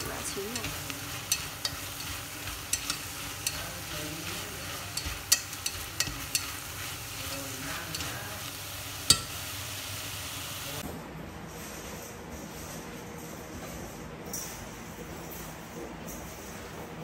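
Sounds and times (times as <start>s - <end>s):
chopsticks clicking against pot: 0.0s - 8.2s
meat sizzling in a pot: 0.0s - 10.8s.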